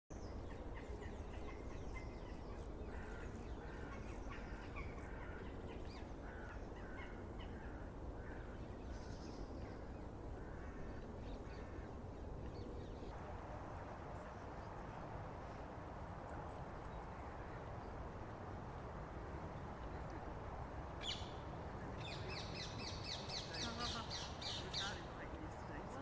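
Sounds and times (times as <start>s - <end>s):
hissy outdoor noise: 0.1s - 26.0s
crows cawing: 2.8s - 12.0s.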